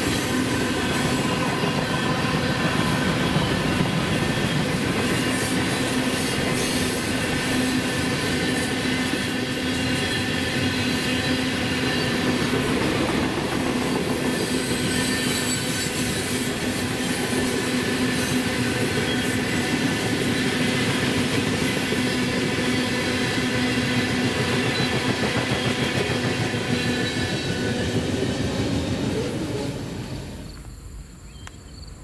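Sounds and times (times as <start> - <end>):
freight train rumbling on rails: 0.0 - 31.2
train wheel squeal: 0.0 - 31.9.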